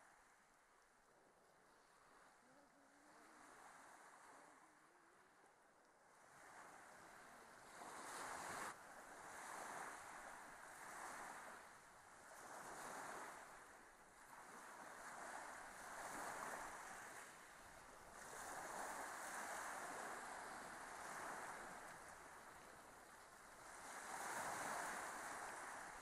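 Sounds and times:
faint wind gusts: 0.0 - 26.0.

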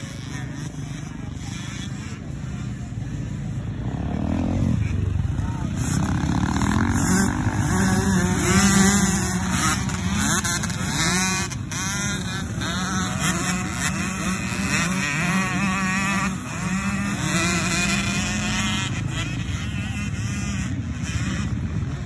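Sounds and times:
dirt bikes revving: 0.0 - 22.0.

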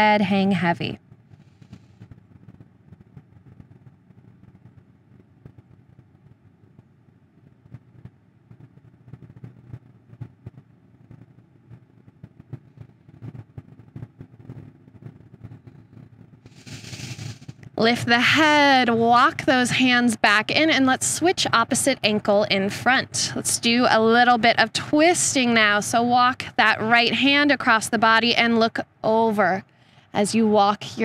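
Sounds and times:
low steady rumble: 0.0 - 31.0
light ticks and crackles: 1.1 - 17.8.

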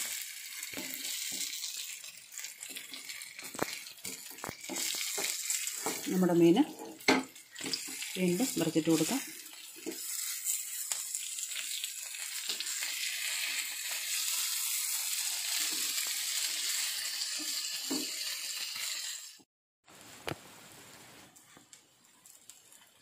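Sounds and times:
fish sizzling in oil: 0.0 - 23.0
wooden spatula scraping: 2.6 - 7.0.

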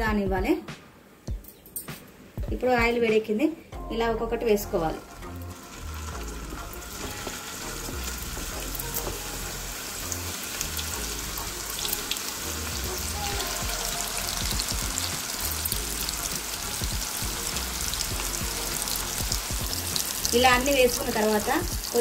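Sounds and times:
deep-frying sizzle and crackling: 4.8 - 22.0.

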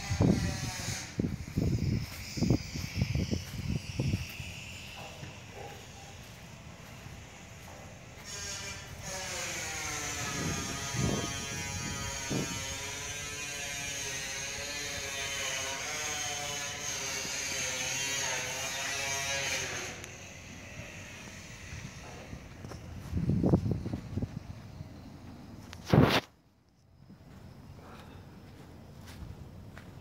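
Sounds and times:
small motor whirring: 0.0 - 22.4.

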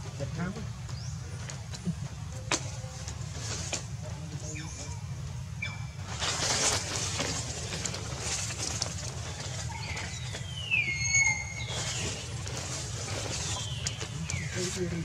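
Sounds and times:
steady low hum: 0.0 - 15.0
light rustling: 6.0 - 15.0
high whistled animal call: 9.8 - 12.2.

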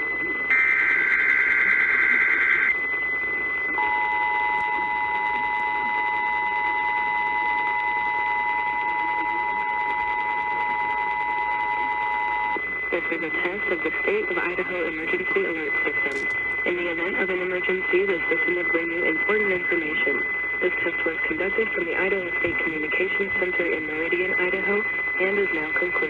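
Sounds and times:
radio static: 0.0 - 26.0
two-tone alert signal: 3.8 - 12.6.

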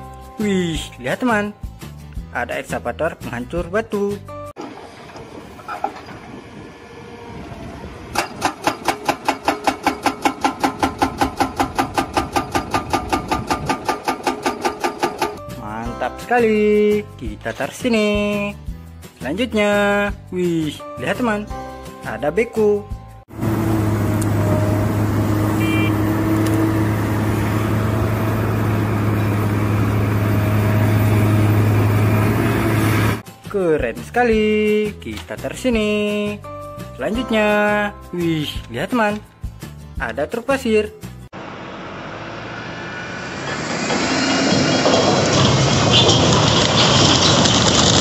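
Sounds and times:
excavator diesel engine running: 4.6 - 15.4, 23.3 - 33.2, 41.4 - 48.0
hydraulic rock breaker hammering: 8.1 - 15.4.

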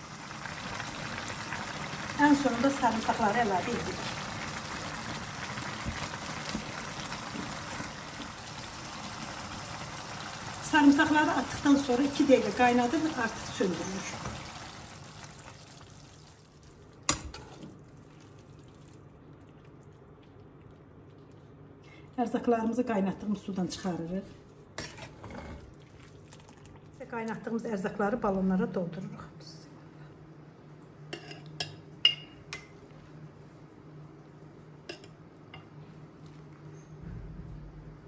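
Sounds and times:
liquid bubbling in a pan: 0.0 - 22.1, 24.6 - 27.1.

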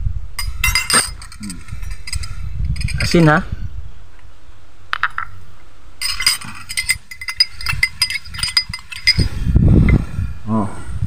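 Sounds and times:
spoon clinking against glass: 0.4 - 3.1, 6.0 - 9.3.

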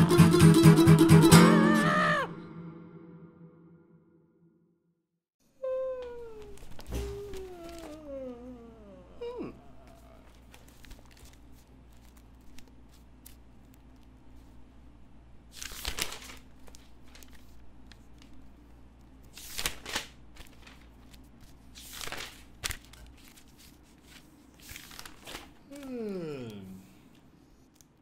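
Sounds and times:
faint paper clicks: 6.1 - 8.3, 9.8 - 14.6, 15.5 - 28.0
notebook pages flipping: 6.5 - 8.0, 9.9 - 14.6, 15.5 - 25.6.

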